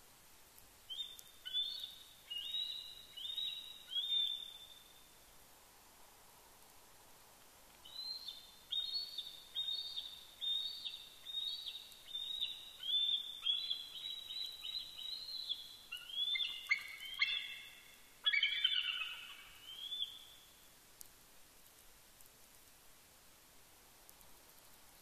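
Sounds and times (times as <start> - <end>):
bald eagles calling: 12.9 - 20.2.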